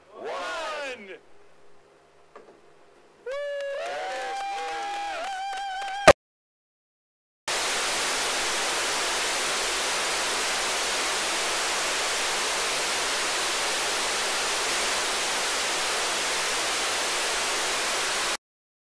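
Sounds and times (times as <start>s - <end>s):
faint low hum: 0.0s - 5.1s
tv static hiss: 0.0s - 5.1s, 7.5s - 18.4s.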